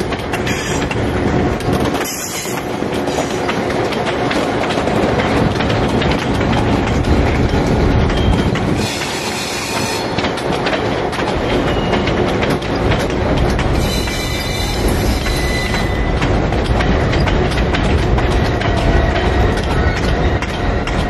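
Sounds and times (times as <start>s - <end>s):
clicks over rail joints: 0.0s - 21.0s
train wheels rumbling on rails: 0.0s - 21.0s
wheel flange squeal: 13.8s - 16.2s.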